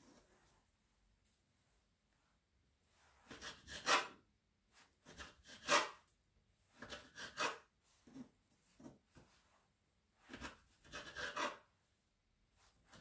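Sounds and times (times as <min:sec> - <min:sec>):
knife scraping on table: 0:06.9 - 0:08.3, 0:10.3 - 0:11.6.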